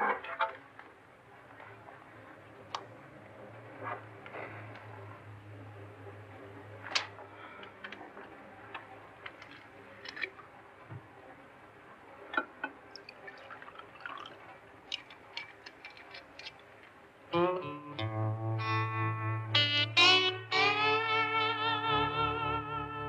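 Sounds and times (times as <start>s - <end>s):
small clicks and ticks: 14.9s - 17.0s
electric guitar playing: 17.3s - 23.0s.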